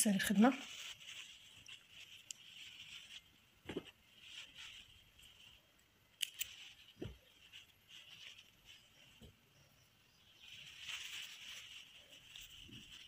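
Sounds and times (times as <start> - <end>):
crochet hook handling thread: 0.7 - 9.4.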